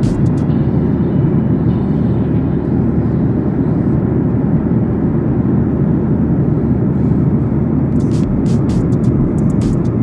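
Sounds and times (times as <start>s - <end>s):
airliner cabin engine rush: 0.0s - 10.0s.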